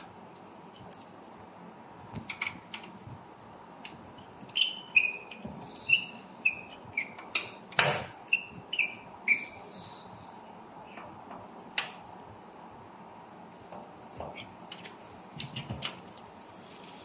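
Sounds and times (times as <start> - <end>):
screwdriver squeaking: 4.2 - 7.6, 8.2 - 9.8.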